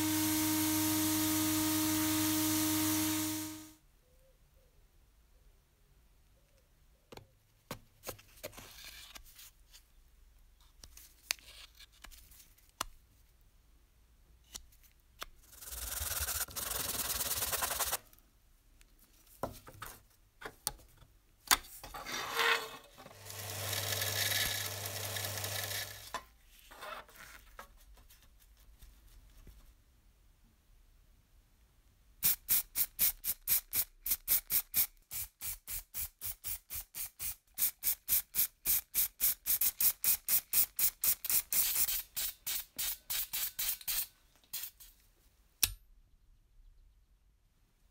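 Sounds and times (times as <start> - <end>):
metal rubbing on sandpaper: 15.4 - 18.0.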